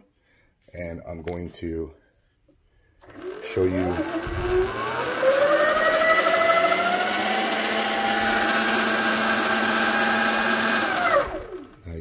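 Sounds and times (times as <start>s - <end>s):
electric motorbike motor whining: 3.0s - 11.8s.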